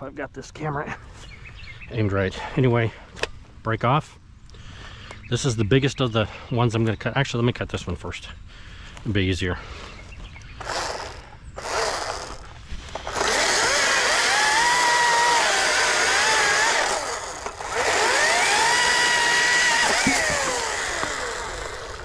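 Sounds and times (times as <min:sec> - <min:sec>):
chain cutting wood: 0:10.6 - 0:22.0
electric chainsaw motor whine: 0:10.6 - 0:22.0.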